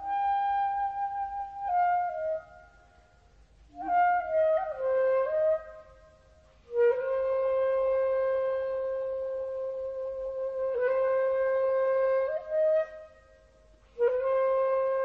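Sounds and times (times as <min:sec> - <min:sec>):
solo woodwind melody: 0:00.0 - 0:15.0.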